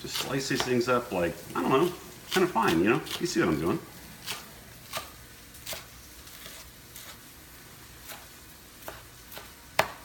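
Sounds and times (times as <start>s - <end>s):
knife slicing on cutting board: 0.0s - 0.8s, 1.6s - 3.6s, 4.2s - 7.3s, 8.0s - 10.0s.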